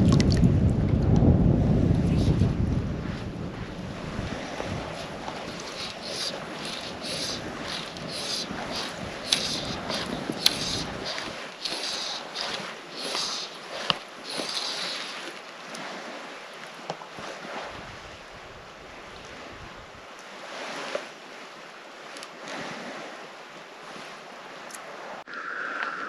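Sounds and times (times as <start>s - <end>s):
wind on microphone: 0.0s - 16.4s, 17.1s - 20.9s
water swishes: 0.0s - 26.0s
water sloshing softly: 1.9s - 25.3s.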